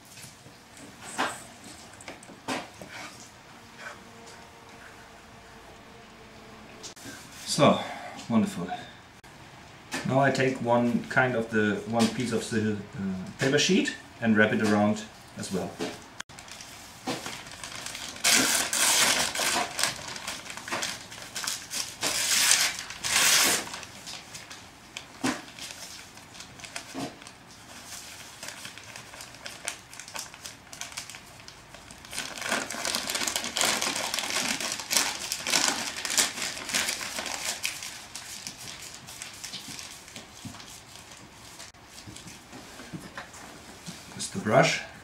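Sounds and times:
newspaper rustling and crinkling: 16.3s - 44.2s.

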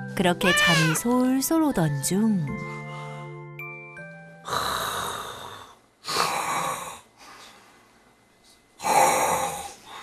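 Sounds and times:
man snoring loudly: 4.4s - 7.1s, 8.8s - 9.8s.

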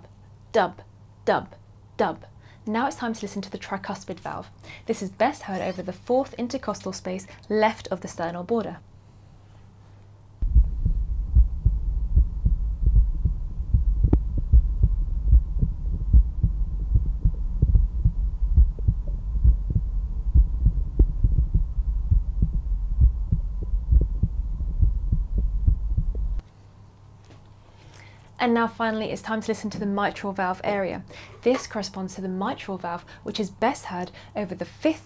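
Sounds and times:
heart beating through stethoscope: 10.4s - 26.4s
low hum: 10.4s - 26.4s.

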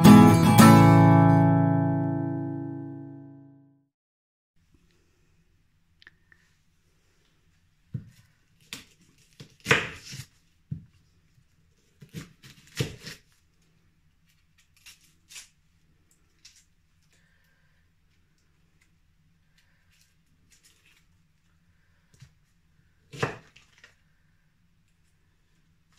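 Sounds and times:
knife cutting onion on counter: 7.9s - 10.9s, 11.8s - 13.3s, 23.1s - 23.9s.

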